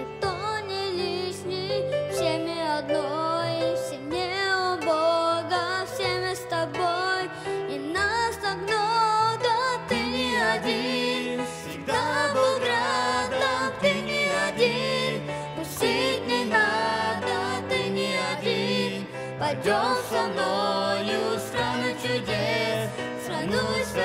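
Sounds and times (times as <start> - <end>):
grand piano: 0.0 - 24.0
man and boy singing: 9.5 - 24.0.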